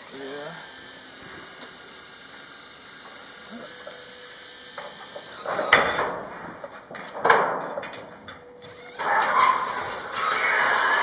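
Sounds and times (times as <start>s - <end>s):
sheet metal roofing scraping: 5.4s - 11.0s.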